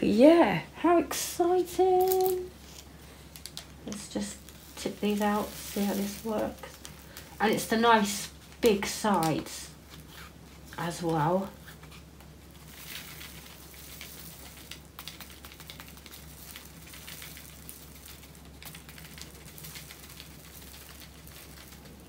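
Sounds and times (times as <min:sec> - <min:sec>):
plastic packaging crinkling: 0:01.6 - 0:22.0
small plastic beads clicking: 0:02.0 - 0:02.5, 0:12.7 - 0:22.0.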